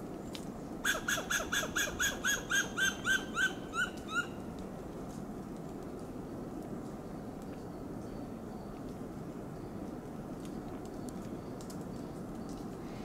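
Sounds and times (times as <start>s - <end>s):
squirrel alarm calls: 0.8s - 4.4s.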